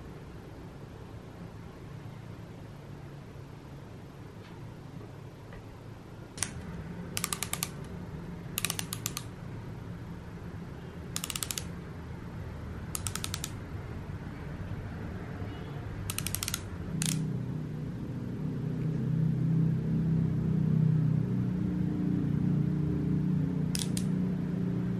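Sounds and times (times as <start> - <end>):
plastic crayon ratchet clicks: 7.2 - 7.9, 8.6 - 9.3, 11.2 - 11.7, 12.9 - 13.6, 16.1 - 17.2, 23.8 - 24.1.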